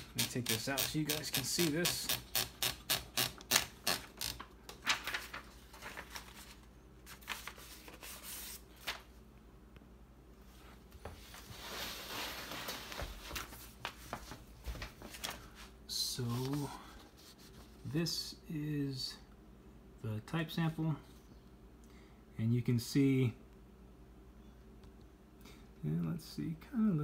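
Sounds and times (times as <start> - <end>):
paper rustling: 3.4 - 9.2, 11.0 - 17.9.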